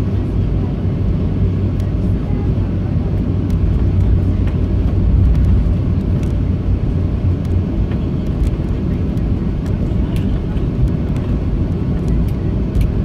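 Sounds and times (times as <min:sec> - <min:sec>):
jet engines idling hum: 0:00.0 - 0:13.0
airframe rumble rolling: 0:03.4 - 0:13.0.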